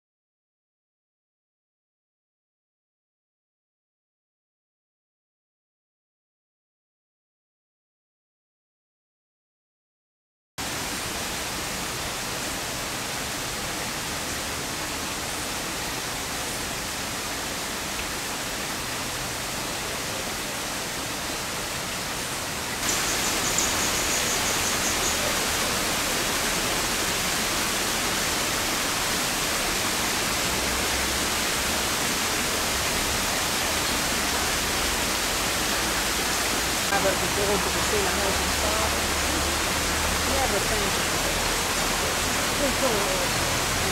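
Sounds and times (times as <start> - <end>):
small waterfall rushing: 10.6 - 43.9.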